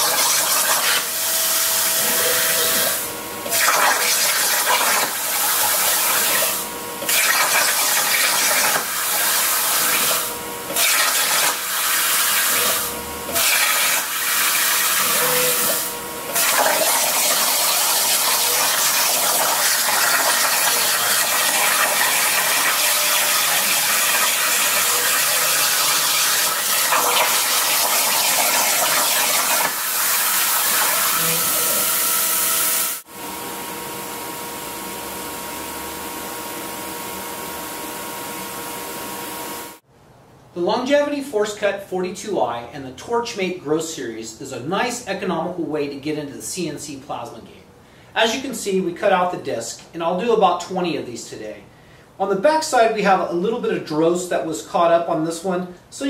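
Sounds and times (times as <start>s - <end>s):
plasma cutter arc hissing: 0.0s - 33.0s.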